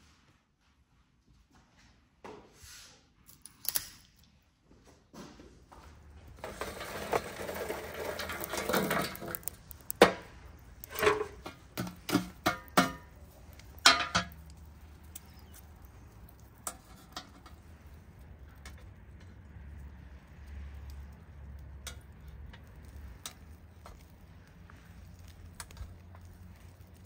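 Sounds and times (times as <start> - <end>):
scraping and rustling: 6.0 - 27.0
sharp knocks and clatters: 6.2 - 27.0.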